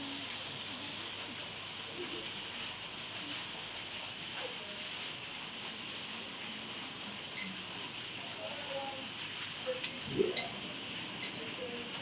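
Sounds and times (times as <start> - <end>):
steady hiss: 0.0 - 12.0
faint people talking: 8.2 - 12.0.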